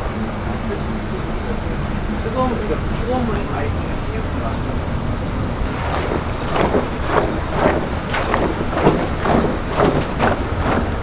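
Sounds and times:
steady low rumble: 0:00.0 - 0:11.0
water splashing and squelching: 0:05.7 - 0:11.0.

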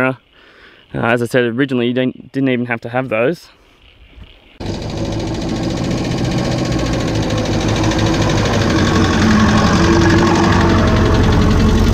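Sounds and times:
car engine running at low speed: 0:04.6 - 0:11.9.

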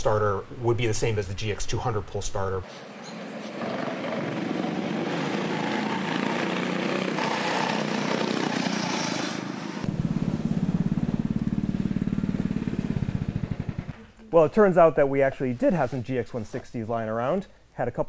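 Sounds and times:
go-kart engine running hard: 0:03.4 - 0:14.1
engine idling putter: 0:09.8 - 0:14.2.

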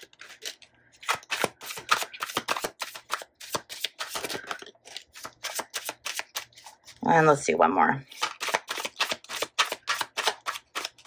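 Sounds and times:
cards being shuffled: 0:00.0 - 0:07.0, 0:08.1 - 0:11.0.

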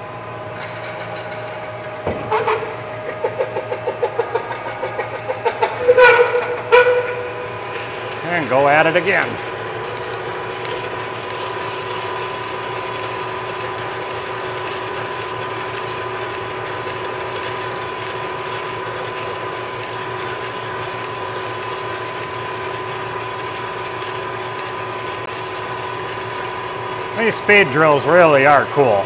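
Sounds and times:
cutting and spraying coolant hiss: 0:06.6 - 0:29.0.

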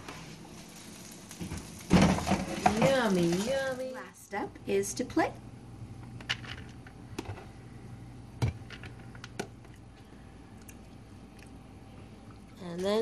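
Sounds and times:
utensils tapping plastic and plates: 0:01.9 - 0:03.5.

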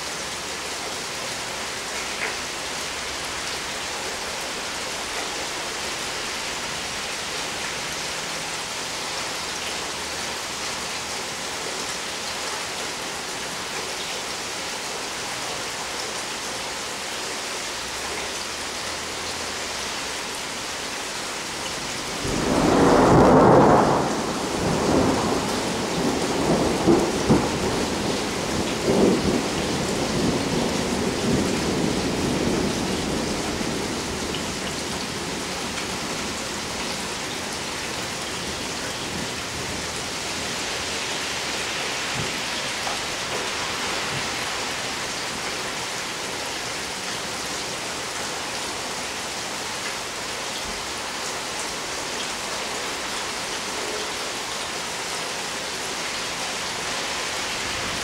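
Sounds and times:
steady rain: 0:00.0 - 0:58.0
thunder rumbling: 0:22.1 - 0:34.3.

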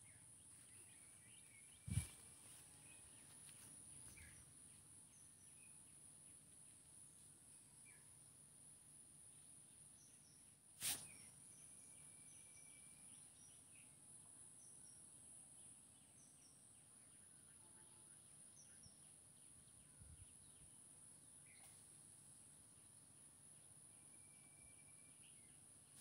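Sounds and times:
small birds chirping: 0:00.0 - 0:08.2.

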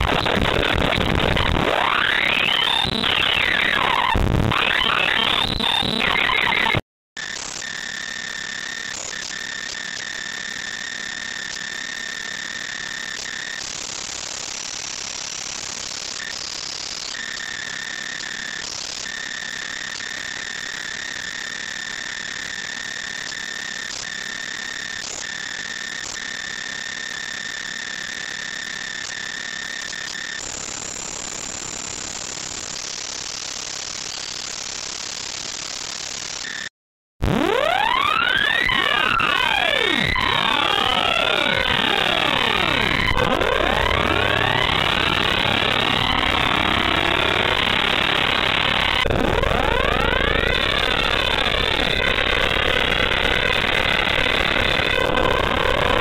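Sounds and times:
harsh electronic noise: 0:00.0 - 0:06.8, 0:36.4 - 0:56.0.

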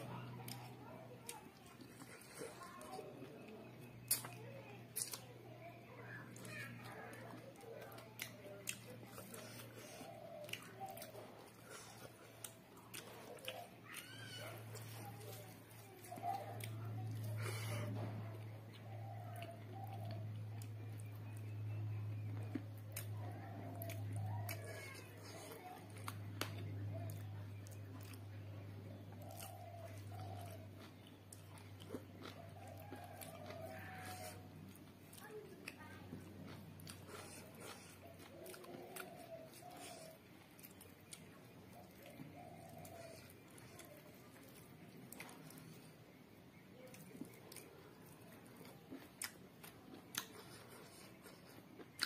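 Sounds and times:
chewing with wet mouth clicks: 0:00.0 - 0:52.0
food squishing by hand: 0:00.0 - 0:52.0
low electrical hum: 0:00.0 - 0:52.0.

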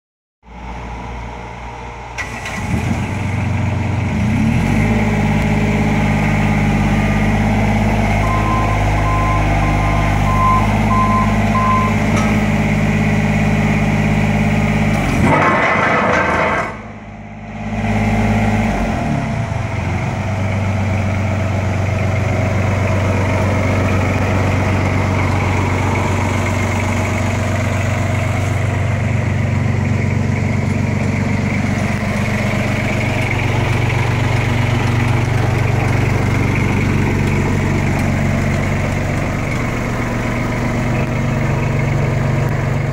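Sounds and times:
diesel roller engine running: 0:00.4 - 0:42.9
short beeps: 0:08.2 - 0:12.3.

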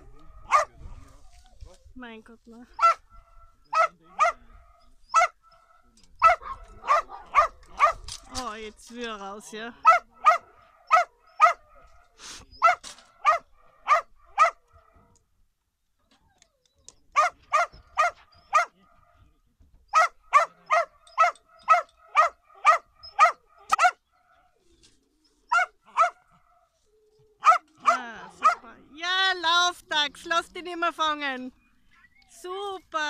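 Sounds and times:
dog barking: 0:00.4 - 0:00.8, 0:02.8 - 0:08.1, 0:09.8 - 0:15.0, 0:17.2 - 0:19.2, 0:19.9 - 0:24.0, 0:25.5 - 0:26.5, 0:27.4 - 0:28.8.

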